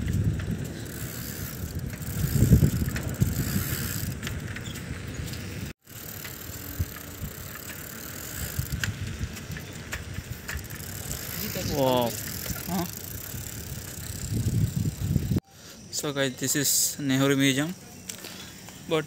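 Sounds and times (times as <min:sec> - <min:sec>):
bicycle tyre noise on road: 0:00.0 - 0:15.4.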